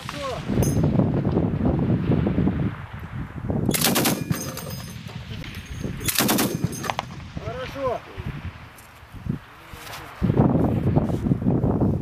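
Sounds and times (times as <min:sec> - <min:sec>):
heavy machine gun bursts: 0:03.7 - 0:04.8, 0:06.0 - 0:07.0.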